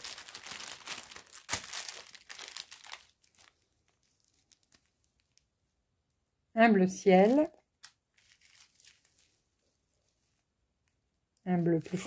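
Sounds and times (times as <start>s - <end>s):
plastic bags crinkling: 0.0s - 5.4s, 7.2s - 10.2s.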